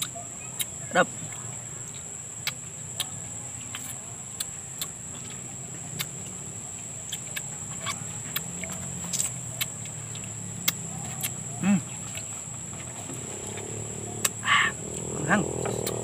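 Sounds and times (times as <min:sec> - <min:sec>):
wet lip smacks eating: 0:07.1 - 0:11.4.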